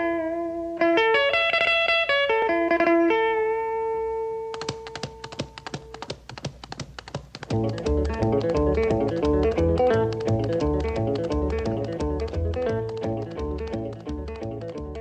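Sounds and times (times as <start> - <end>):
guitar picking melody: 0.0 - 15.0
fast clicks: 4.5 - 15.0.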